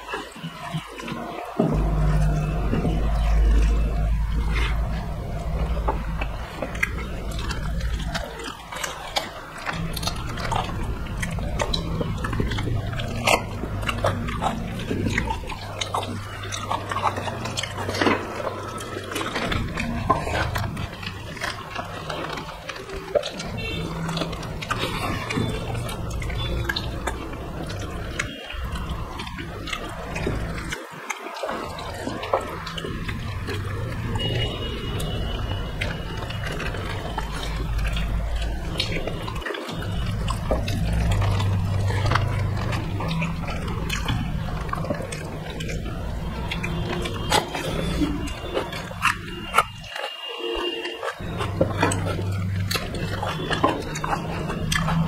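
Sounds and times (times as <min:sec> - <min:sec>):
wet chewing and lip smacking: 0:00.0 - 0:55.0
low hum: 0:01.6 - 0:22.7.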